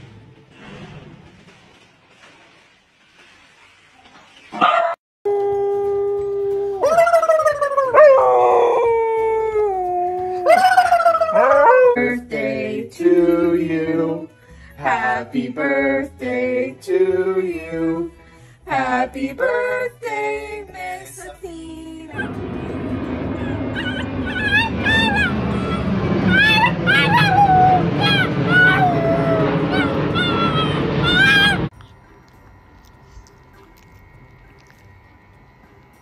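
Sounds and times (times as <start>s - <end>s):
dog howling: 4.7s - 12.2s, 22.1s - 31.7s
person singing: 11.4s - 18.1s.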